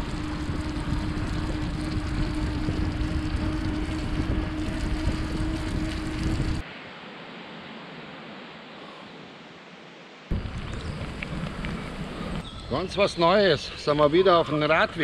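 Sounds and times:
wind on microphone: 0:00.0 - 0:06.6, 0:10.3 - 0:13.0
steady hum: 0:00.0 - 0:06.7.

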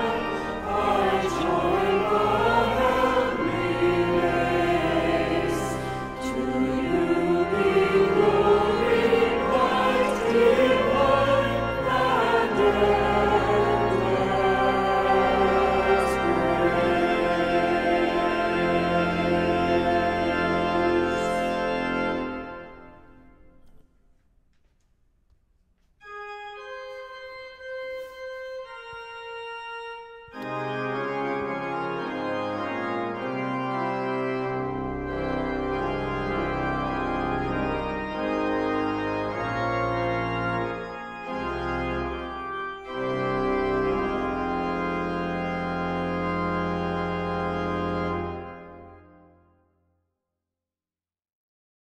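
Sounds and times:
organ playing: 0:00.0 - 0:24.0, 0:26.0 - 0:49.4.

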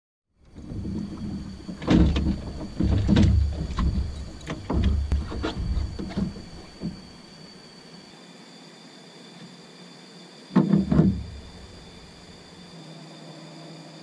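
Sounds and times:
deep rumble: 0:00.4 - 0:07.1
knocks on aluminum boat hull: 0:00.6 - 0:07.0, 0:10.6 - 0:11.6.

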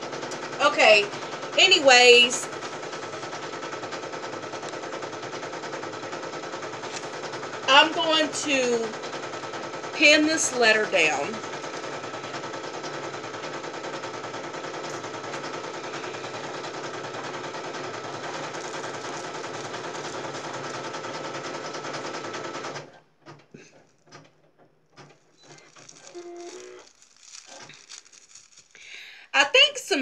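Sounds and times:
embroidery machine clattering: 0:00.0 - 0:29.0
paper and fabric rustling: 0:14.8 - 0:22.3, 0:25.0 - 0:29.0.

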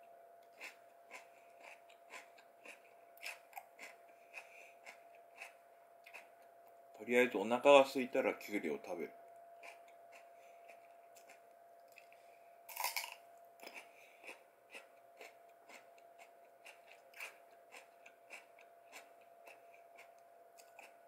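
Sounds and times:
person crunching cucumber: 0:00.5 - 0:06.3, 0:09.6 - 0:12.1, 0:12.7 - 0:21.0.

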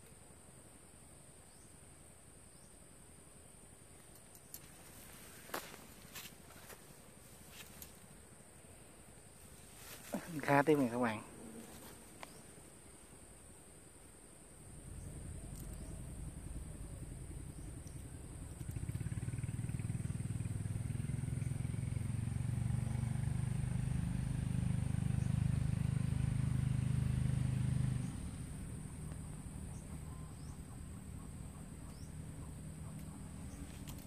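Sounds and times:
high insect drone: 0:00.0 - 0:34.0
motor engine humming: 0:14.7 - 0:34.0.

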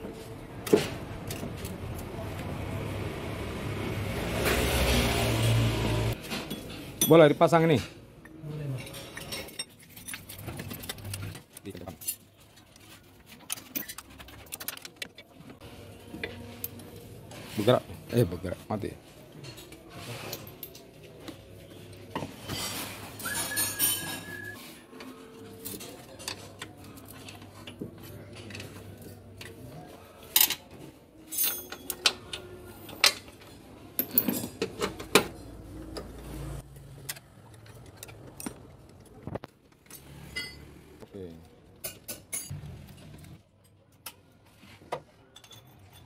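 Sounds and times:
hand tools clinking on metal: 0:06.3 - 0:15.0, 0:31.3 - 0:33.4, 0:45.3 - 0:46.0.

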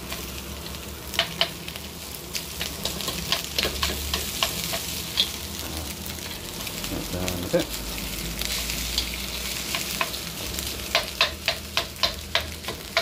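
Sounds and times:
rice sizzling in a wok: 0:00.0 - 0:13.0
chopsticks clicking against pan: 0:01.1 - 0:01.6, 0:02.6 - 0:05.4, 0:10.8 - 0:13.0.

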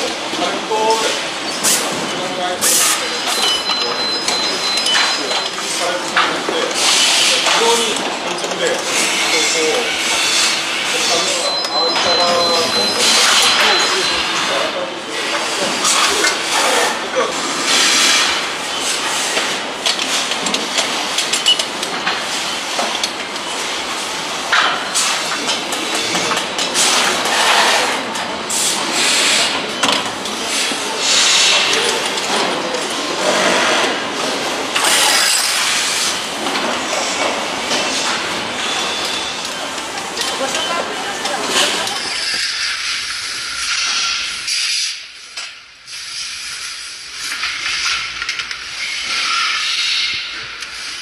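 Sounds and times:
hissing factory noise: 0:00.0 - 0:51.0
steady machinery hiss: 0:30.4 - 0:32.1.

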